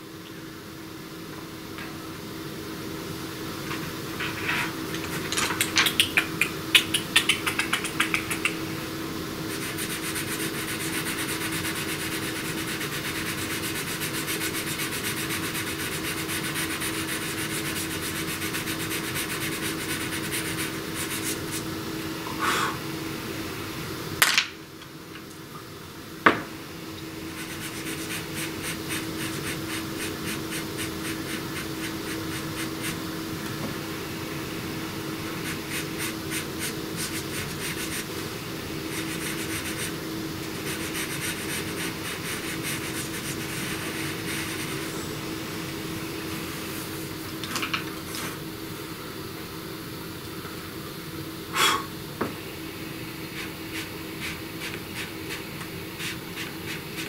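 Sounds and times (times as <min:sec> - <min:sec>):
steady low hum: 0:00.0 - 0:57.0
pencil scratching on paper: 0:09.5 - 0:21.6, 0:27.3 - 0:33.0, 0:35.4 - 0:38.1, 0:38.9 - 0:40.0, 0:40.6 - 0:44.9, 0:53.4 - 0:55.4, 0:56.0 - 0:57.0.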